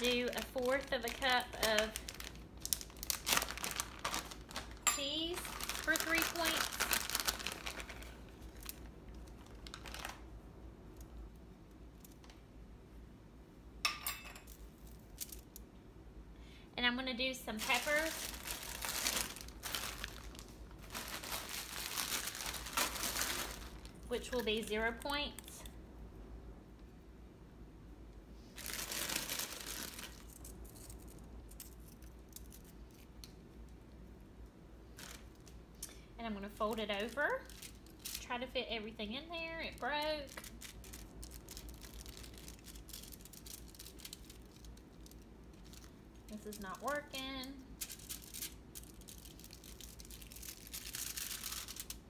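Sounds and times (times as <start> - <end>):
aluminium foil crinkling: 0.0 - 10.3, 14.4 - 15.6, 17.5 - 25.7, 28.6 - 33.4, 34.9 - 52.0.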